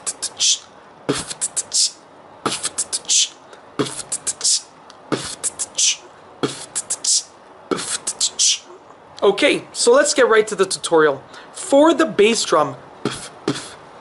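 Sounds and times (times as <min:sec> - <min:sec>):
beatboxing: 0:00.0 - 0:08.8, 0:13.0 - 0:13.8.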